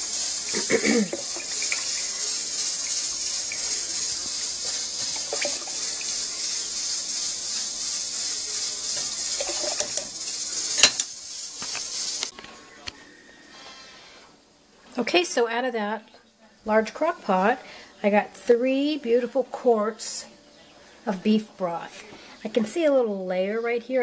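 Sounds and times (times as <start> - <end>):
liquid trickling into jar: 5.1 - 5.8
glass clink: 10.8 - 11.1.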